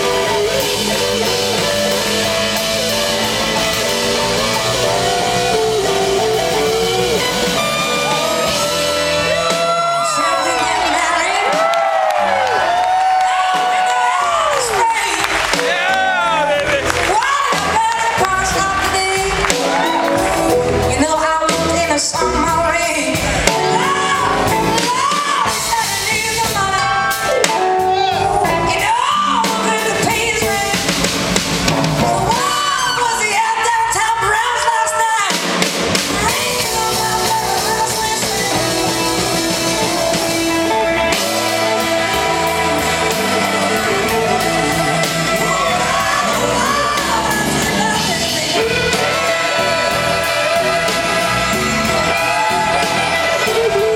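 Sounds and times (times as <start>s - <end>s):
woman singing: 0.0s - 12.1s, 17.0s - 31.2s, 32.0s - 35.5s, 36.1s - 53.9s
electric guitars: 0.0s - 14.2s, 35.7s - 53.9s
horn section playing: 0.0s - 33.5s, 35.9s - 53.9s
drum kit: 0.0s - 53.9s.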